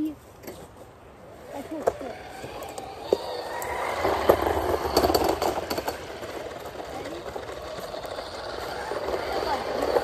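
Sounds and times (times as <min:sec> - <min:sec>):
scooter wheels rattling on pavement: 0:01.2 - 0:10.0
sharp clicks and knocks: 0:04.2 - 0:08.2.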